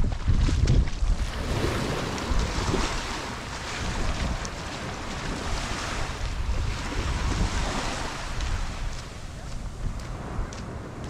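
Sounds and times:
surf washing onto beach: 0.0s - 11.0s
wind rumbling on microphone: 0.0s - 11.0s.

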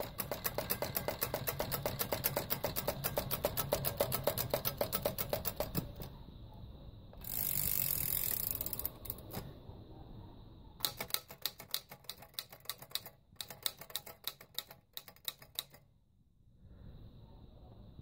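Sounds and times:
typewriter clicks: 0.0s - 6.1s, 7.2s - 9.5s, 10.8s - 15.8s
typewriter key strikes: 0.0s - 6.1s, 10.8s - 15.8s
typewriter rasping whir: 0.0s - 6.2s, 7.2s - 9.5s, 10.8s - 15.8s.

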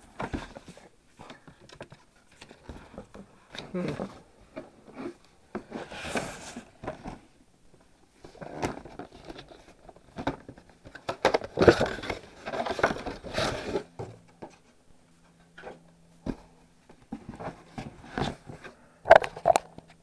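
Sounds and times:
packaging crinkling and rustling: 8.3s - 14.0s.

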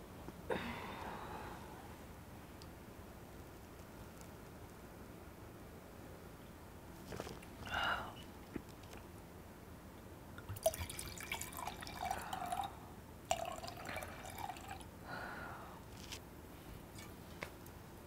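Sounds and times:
liquid pouring into a glass: 10.5s - 14.9s.

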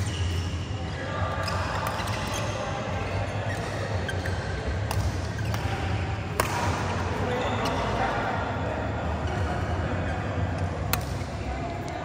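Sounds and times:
rackets hitting shuttlecock: 3.6s - 7.1s, 10.8s - 11.3s.

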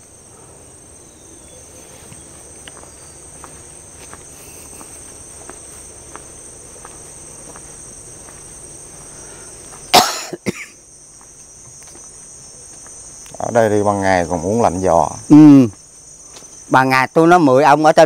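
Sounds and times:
insects chirring: 0.0s - 18.0s
person coughing: 9.9s - 10.8s.

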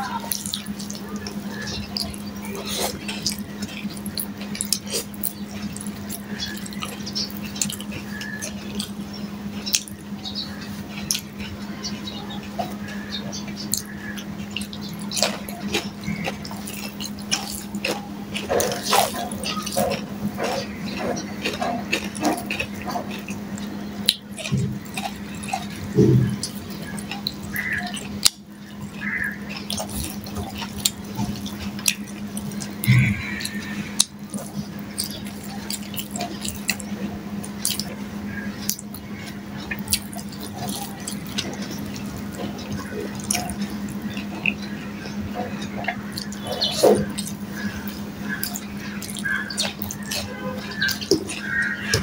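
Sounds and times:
chewing and mouth smacking: 0.0s - 52.0s
fingers mixing rice on steel plate: 0.0s - 52.0s
steady low hum: 0.0s - 52.0s
sharp mouth clicks: 13.6s - 38.0s.

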